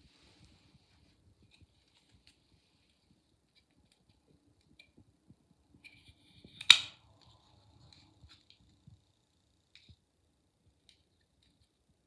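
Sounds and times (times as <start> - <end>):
knife blade snapping open: 6.6 - 7.0
knife handling clicks: 6.6 - 7.0.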